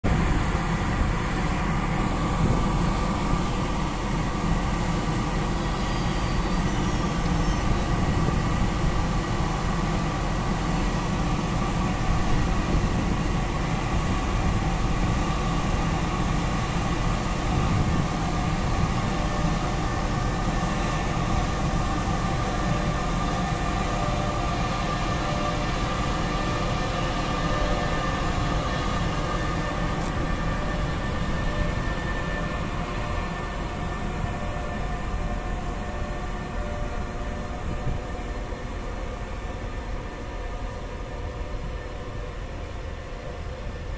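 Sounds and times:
electric locomotive humming: 0:00.0 - 0:43.9
lower whining tone: 0:00.1 - 0:43.9.

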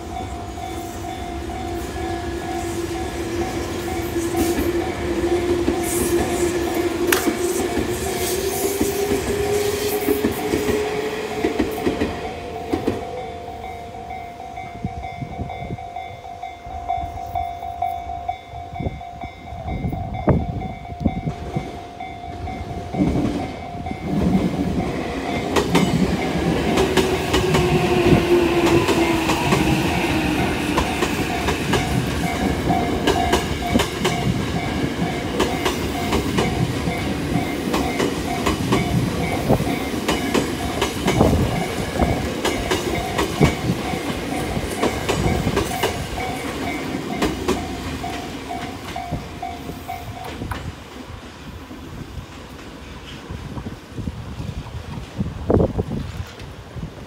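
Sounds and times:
train departing: 0:00.0 - 0:57.0
train wheels clicking over rail joints: 0:22.2 - 0:51.0.

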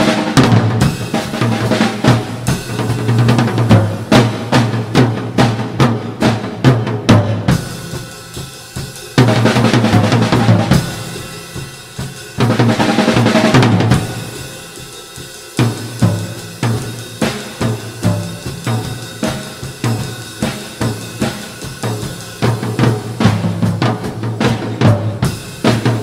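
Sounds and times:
snare and bass drum strokes: 0:00.0 - 0:26.0
cymbal crashes ringing: 0:13.8 - 0:23.1.

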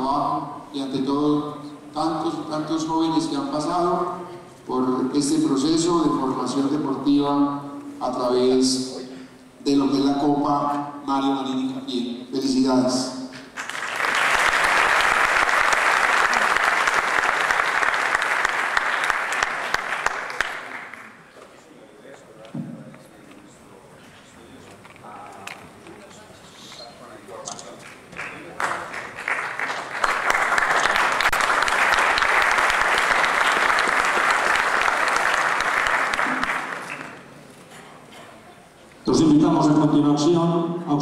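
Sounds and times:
audience applauding: 0:13.6 - 0:21.2, 0:27.8 - 0:37.3.

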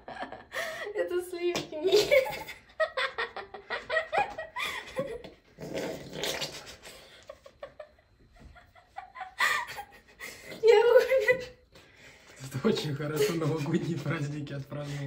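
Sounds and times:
people laughing: 0:01.9 - 0:05.3, 0:12.6 - 0:15.0
cream gurgling from a carton: 0:05.6 - 0:06.8.

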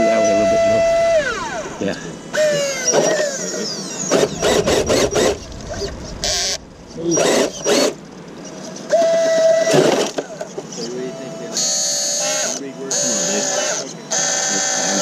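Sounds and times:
electric motor whining: 0:00.0 - 0:08.2.

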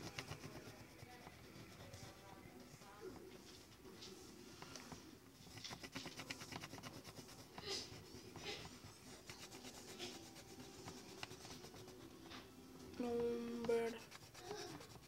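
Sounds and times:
marker scribbling on paper: 0:00.0 - 0:02.9, 0:05.4 - 0:12.5, 0:13.1 - 0:15.0.

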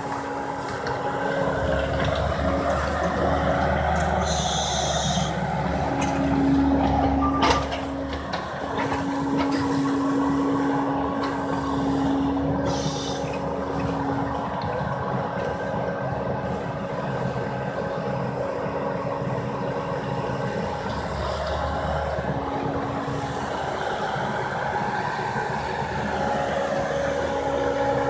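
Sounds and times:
loader engine running under load: 0:00.0 - 0:28.0.

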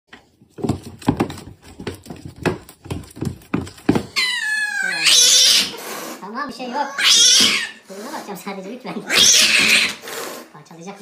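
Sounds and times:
cats scuffling on wooden floor: 0:00.2 - 0:04.2
cat yowling: 0:04.2 - 0:05.8, 0:06.9 - 0:07.8, 0:09.1 - 0:10.0
cat hissing: 0:04.6 - 0:08.3, 0:09.0 - 0:10.6.

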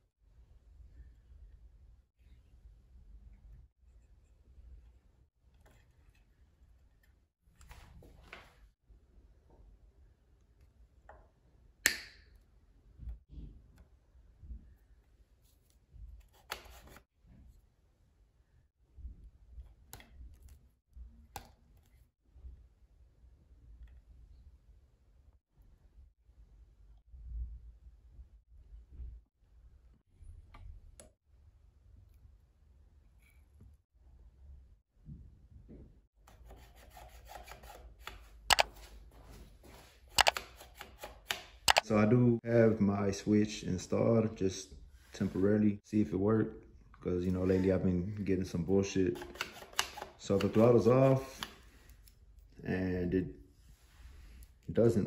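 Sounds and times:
sharp plastic clicks: 0:40.1 - 0:41.9, 0:49.2 - 0:50.7
sharp clicks: 0:41.2 - 0:41.9.

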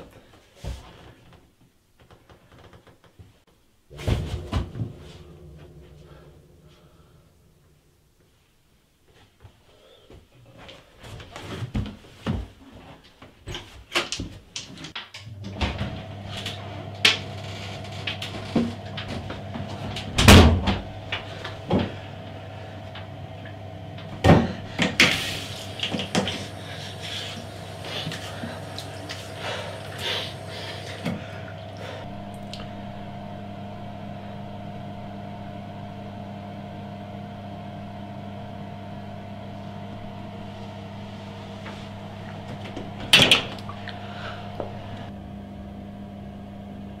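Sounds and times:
electrical hum: 0:03.8 - 0:09.2, 0:15.2 - 0:47.0.

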